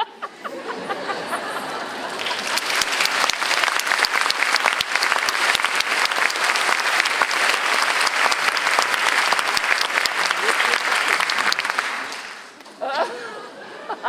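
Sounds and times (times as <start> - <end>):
audience applauding: 1.6 - 12.8.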